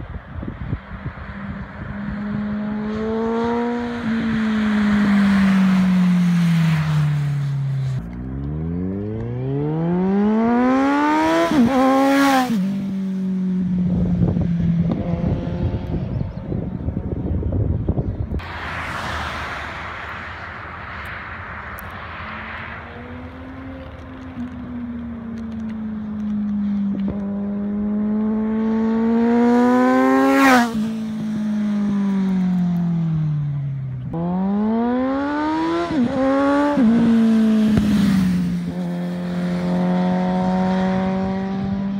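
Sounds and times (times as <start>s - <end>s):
wind buffeting microphone: 0.0s - 7.2s, 13.6s - 21.6s
motorcycle engine accelerating past: 0.6s - 17.2s, 22.3s - 41.9s.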